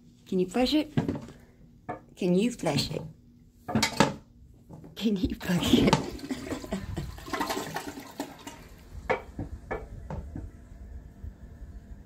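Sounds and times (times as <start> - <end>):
toilet flushing: 5.5 - 9.0.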